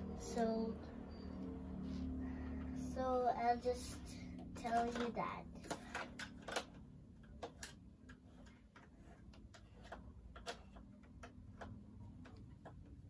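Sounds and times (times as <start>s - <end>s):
plastic toy pieces clicking: 4.6s - 12.4s.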